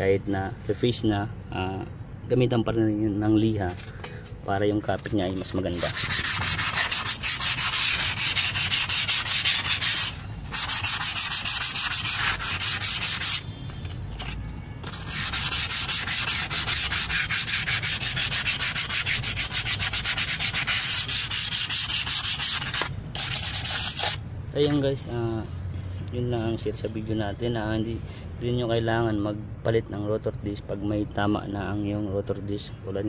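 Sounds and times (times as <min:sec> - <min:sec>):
sandpaper rubbing on metal: 0:04.9 - 0:13.5, 0:14.2 - 0:28.1.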